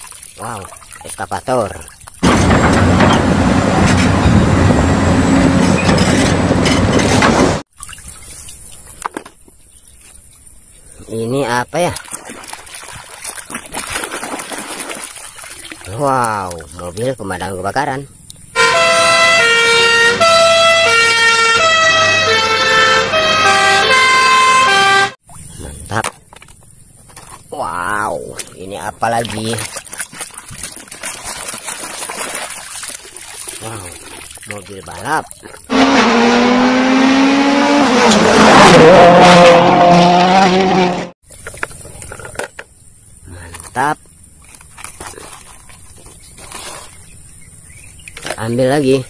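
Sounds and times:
two-tone fire engine sirens: 0:18.6 - 0:25.2
rally car engine at high revs: 0:35.7 - 0:41.2.

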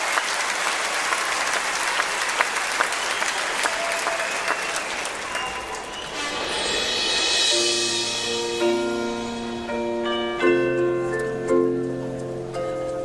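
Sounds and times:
stadium crowd applauding: 0:00.0 - 0:06.6.

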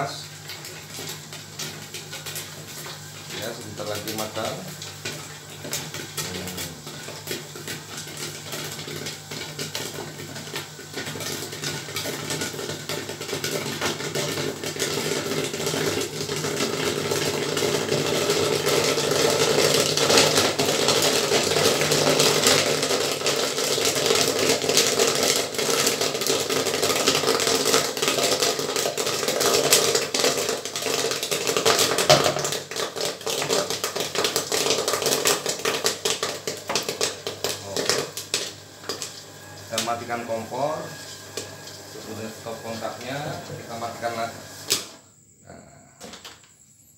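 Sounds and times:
machine hum: 0:00.0 - 0:29.6
popcorn popping: 0:00.0 - 0:46.5.

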